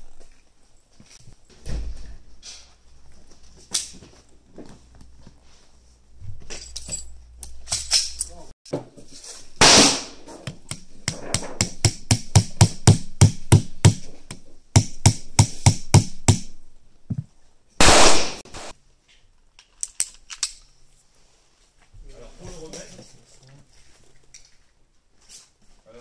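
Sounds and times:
loud gunshot bangs: 9.6s - 10.2s, 17.8s - 18.7s
metal taps and clicks of revolver loading: 19.6s - 20.7s.

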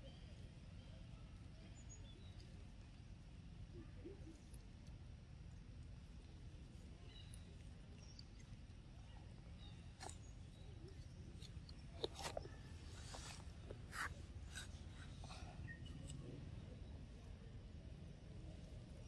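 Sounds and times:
faint low outdoor rumble: 0.0s - 19.0s
monkey eating smacks and clicks: 9.6s - 16.4s.

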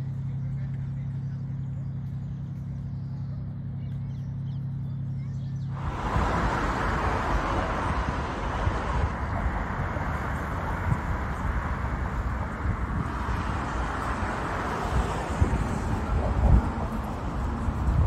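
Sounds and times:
wind buffeting microphone: 5.7s - 18.0s.

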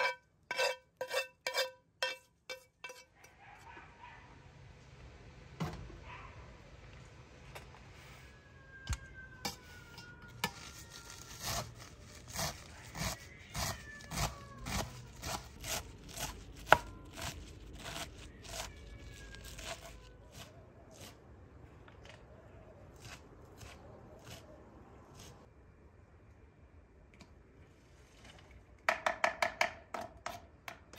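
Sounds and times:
knife chopping herbs on wooden board: 12.3s - 18.7s.

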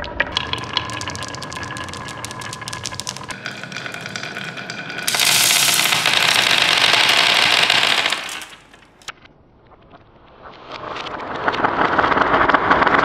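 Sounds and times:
plastic beads clattering on table: 0.3s - 9.1s.

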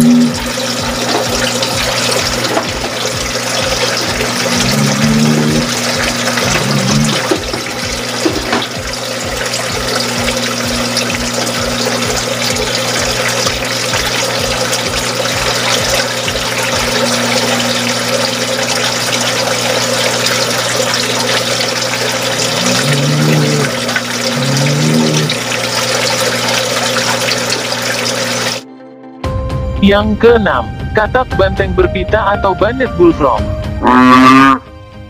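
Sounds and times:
water pouring and bubbling: 0.0s - 28.6s
frog deep calls: 4.4s - 5.8s, 6.4s - 7.2s, 22.4s - 25.4s, 33.8s - 34.7s.

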